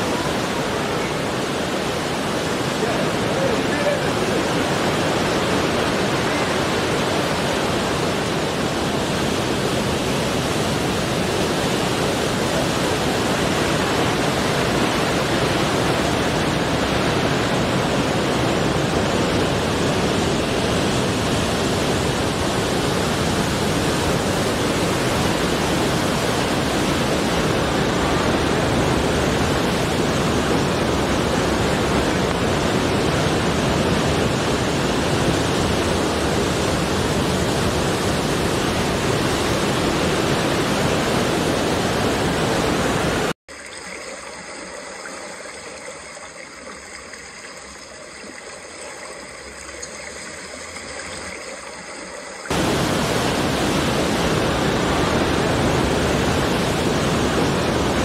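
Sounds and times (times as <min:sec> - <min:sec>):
surf breaking on rocks: 0:52.5 - 0:58.0.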